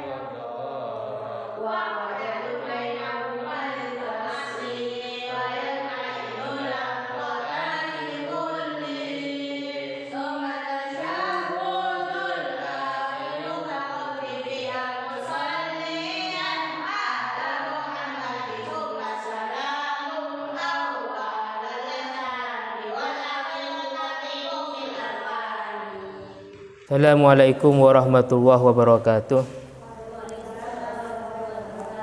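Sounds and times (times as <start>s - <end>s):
man chanting: 0.0s - 1.6s, 26.9s - 31.8s.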